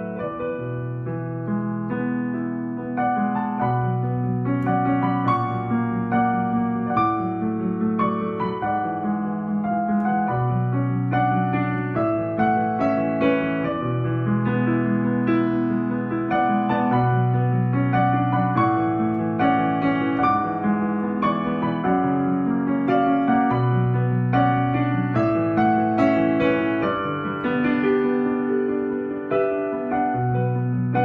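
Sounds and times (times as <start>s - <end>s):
slow digital piano melody: 0.0s - 31.0s.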